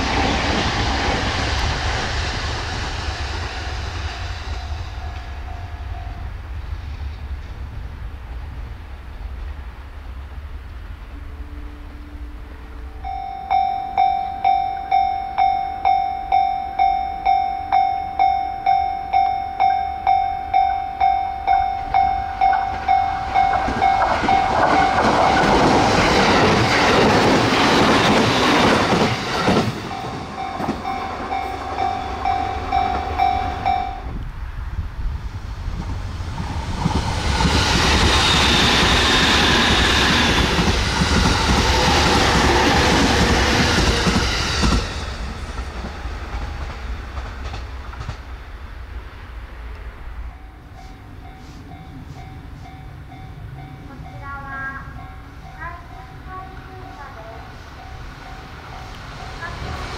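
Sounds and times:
train passing with rail clatter: 0:00.0 - 0:59.9
level crossing bell dinging: 0:13.0 - 0:25.0.

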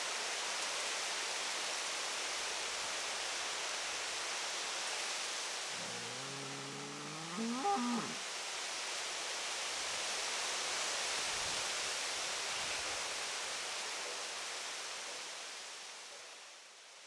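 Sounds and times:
steady hiss: 0:00.0 - 0:17.0
drawn-out low call rising: 0:05.7 - 0:08.2.

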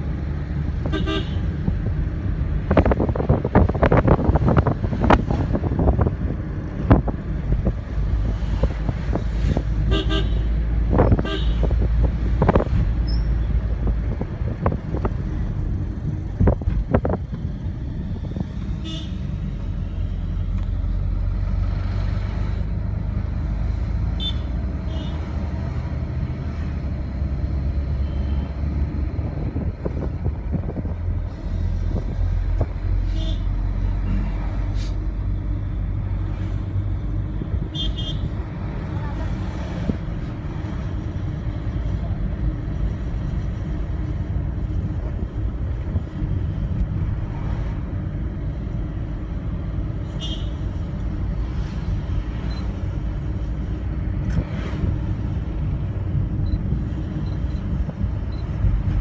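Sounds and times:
car engine and road rumble: 0:00.0 - 0:59.0
car horn toots: 0:00.8 - 0:01.5, 0:09.9 - 0:10.5.

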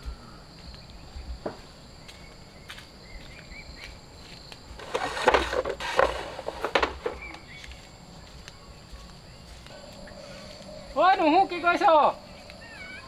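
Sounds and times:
insects: 0:00.0 - 0:13.0
hollow wooden knocks and rattles: 0:04.8 - 0:07.4
faint bird chirps: 0:07.1 - 0:13.0.

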